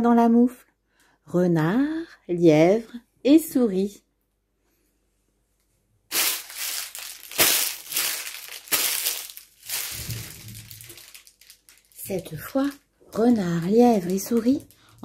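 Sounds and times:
footsteps crunching through snow: 6.1 - 10.4.

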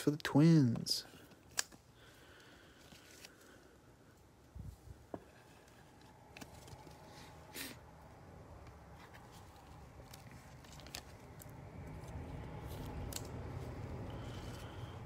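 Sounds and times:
cards and wrapper rustling: 2.4 - 3.7, 5.4 - 7.4, 8.8 - 15.0.

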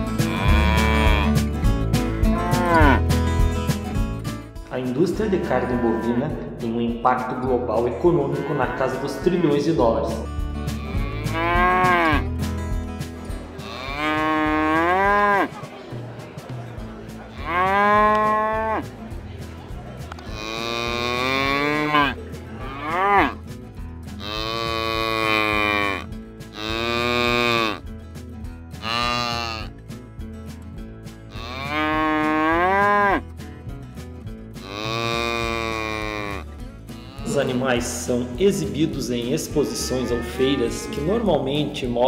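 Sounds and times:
cattle mooing: 0.2 - 1.4, 2.2 - 3.1, 5.4 - 6.3, 8.2 - 9.6, 10.8 - 12.3, 13.6 - 15.5, 17.3 - 18.8, 20.2 - 23.4, 24.2 - 27.8, 28.8 - 29.7, 31.3 - 33.2, 34.6 - 37.5, 39.5 - 41.5.

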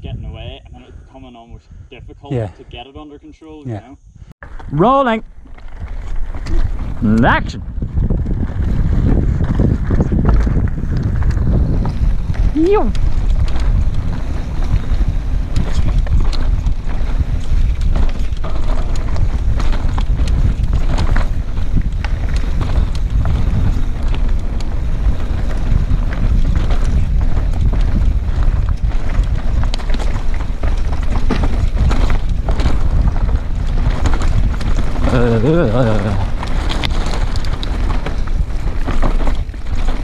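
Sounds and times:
wind buffeting on microphone: 0.0 - 3.0, 3.7 - 40.0
stones and bike parts rattling: 4.4 - 40.0
tyres crunching over gravel: 4.4 - 40.0.

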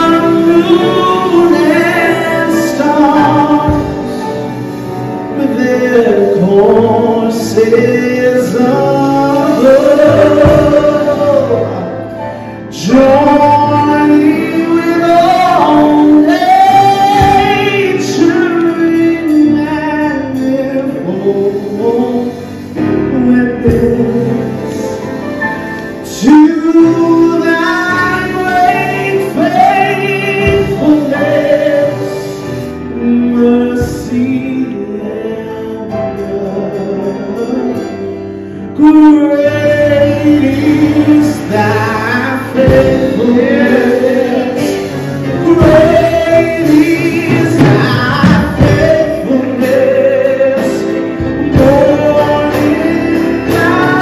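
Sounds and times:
man singing gospel song: 0.0 - 54.0.

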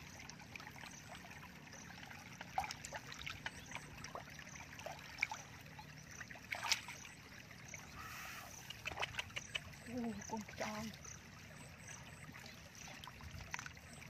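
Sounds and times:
feet wading through muddy water: 0.0 - 14.0
water splash: 2.0 - 5.6, 6.2 - 7.2
water dripping: 8.6 - 14.0.

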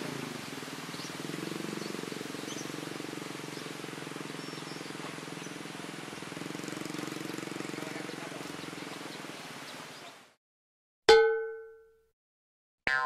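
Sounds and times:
motorcycle engine idling: 0.0 - 9.5.

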